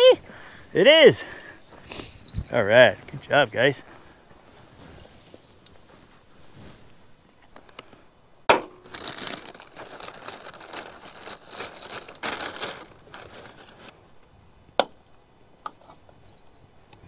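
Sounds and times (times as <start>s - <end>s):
paper crinkling: 8.8s - 13.9s.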